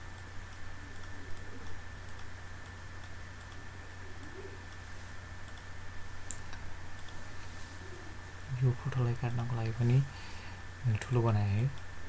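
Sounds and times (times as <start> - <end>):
low electrical hum: 0.0 - 12.0
computer mouse clicks: 0.1 - 3.6, 5.4 - 5.7, 6.3 - 7.2.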